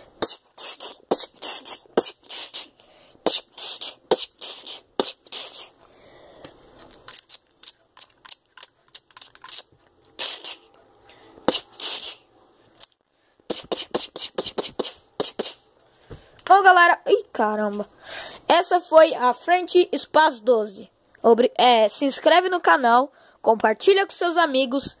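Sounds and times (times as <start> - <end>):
sharp mouth clicks: 6.8 - 12.2, 13.5 - 15.7.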